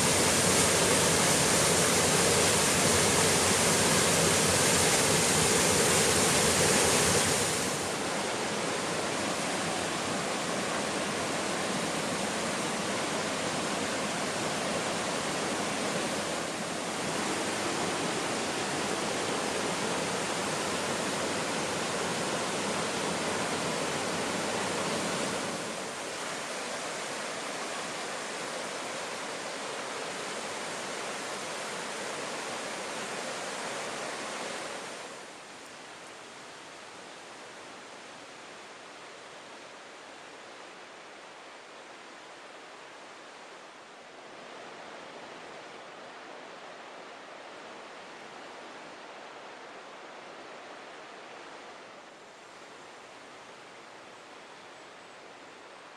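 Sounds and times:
waterfall roaring: 0:00.0 - 0:35.3.

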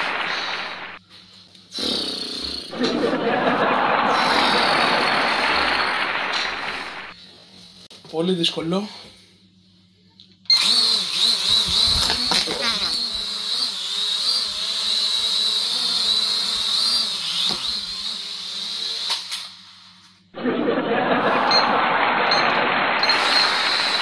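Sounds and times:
toy drone propellers whirring: 0:04.1 - 0:06.9, 0:10.5 - 0:20.2, 0:23.0 - 0:24.0.

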